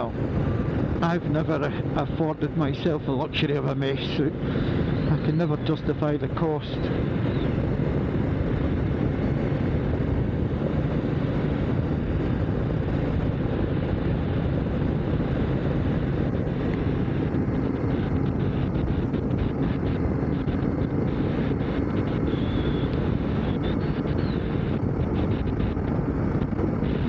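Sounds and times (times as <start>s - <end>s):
wind rushing over microphone: 0.0s - 27.0s
motorcycle engine running: 6.8s - 27.0s.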